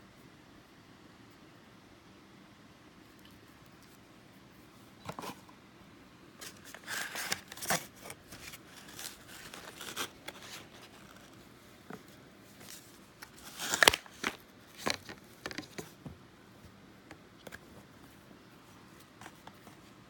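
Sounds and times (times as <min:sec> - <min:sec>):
objects being handled: 0:06.4 - 0:16.1.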